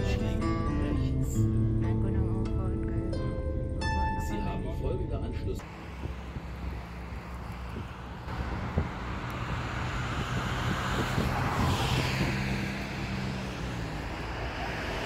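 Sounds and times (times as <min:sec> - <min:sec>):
low engine hum: 0:00.0 - 0:15.0
vehicle passing: 0:05.6 - 0:15.0.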